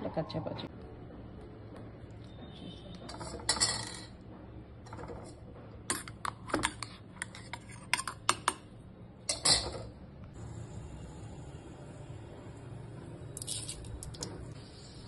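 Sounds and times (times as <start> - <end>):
spoon scraping metal jar: 5.9 - 8.3.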